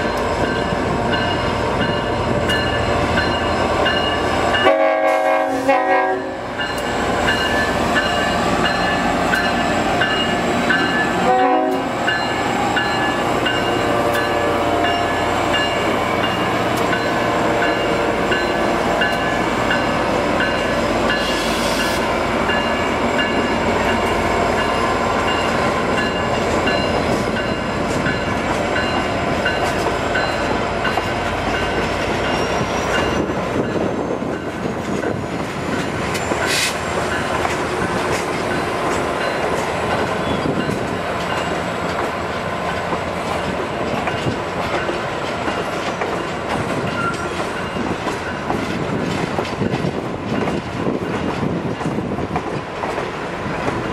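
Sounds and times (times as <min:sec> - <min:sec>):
locomotive bell ringing: 0:00.0 - 0:05.1, 0:06.1 - 0:42.0, 0:42.6 - 0:48.6
diesel locomotive engines running: 0:00.0 - 0:53.9
train horn blast: 0:04.6 - 0:06.6, 0:11.1 - 0:12.0, 0:13.8 - 0:15.2.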